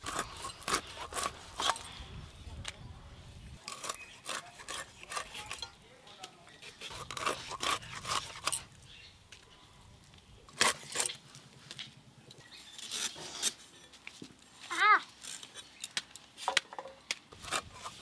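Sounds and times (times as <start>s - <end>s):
scraping and rubbing on blade: 3.6s - 5.8s, 6.6s - 8.6s, 12.7s - 14.0s, 17.4s - 18.0s.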